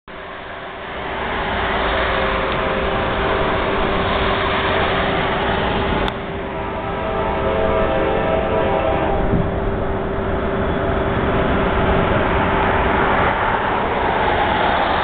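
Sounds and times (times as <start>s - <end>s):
train rumble: 0.1s - 15.0s
train horn: 1.7s - 10.8s.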